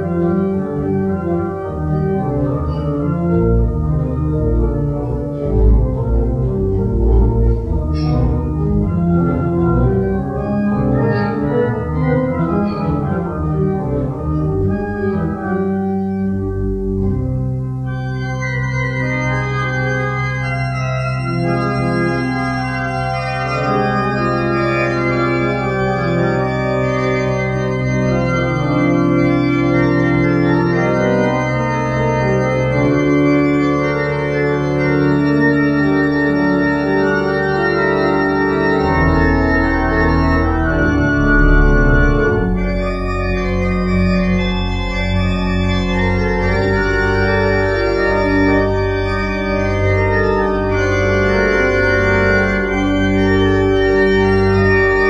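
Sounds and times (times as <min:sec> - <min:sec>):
organ playing a hymn: 0:00.0 - 0:55.0
low organ bass note: 0:00.9 - 0:21.8, 0:38.3 - 0:47.6.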